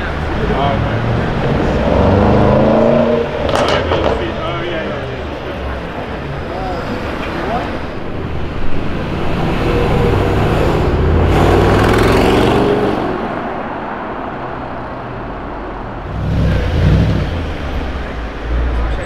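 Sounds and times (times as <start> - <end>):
car engine accelerating: 0.0 - 6.1, 8.7 - 13.7, 15.9 - 19.0.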